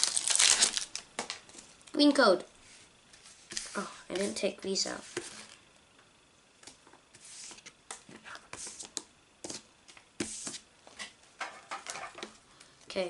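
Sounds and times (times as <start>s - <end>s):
cards swishing against cards: 6.6s - 10.7s.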